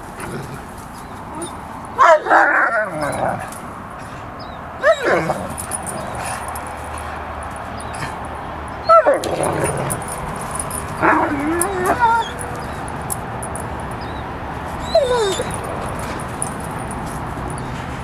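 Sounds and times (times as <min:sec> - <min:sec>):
dog whining yelps: 0:01.3 - 0:03.3, 0:04.8 - 0:06.2, 0:08.8 - 0:09.3, 0:11.0 - 0:12.9, 0:14.8 - 0:15.7.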